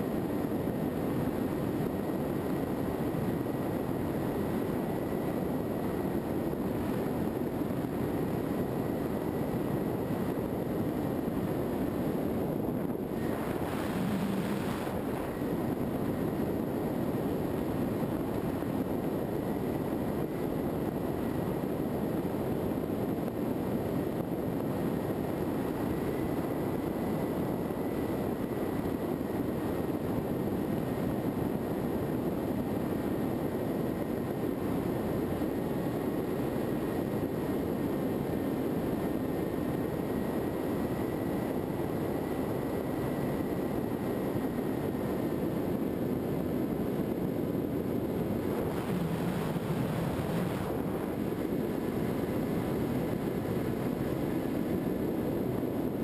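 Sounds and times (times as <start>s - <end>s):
faint high whine: 0.0s - 56.0s
wind rushing over a camera: 0.0s - 56.0s
electric motor and propeller drone: 13.1s - 15.6s.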